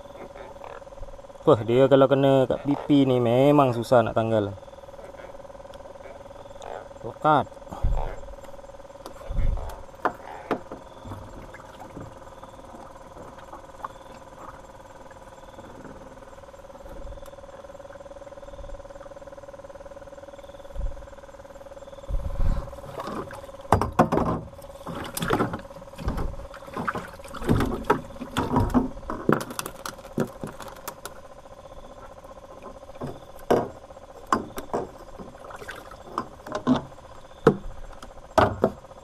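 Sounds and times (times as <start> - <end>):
steady hum: 0.0 - 39.0
fishing gear knocking and clattering: 22.9 - 31.2.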